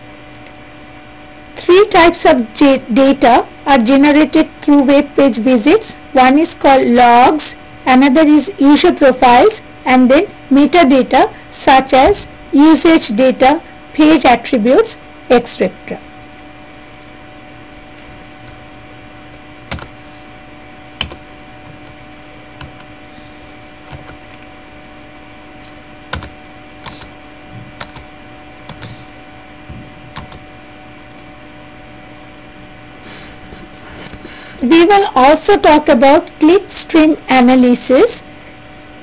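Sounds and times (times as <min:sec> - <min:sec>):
electrical hum and hiss: 0:00.0 - 0:39.0
sharp computer clicks: 0:27.8 - 0:29.0, 0:30.1 - 0:30.4.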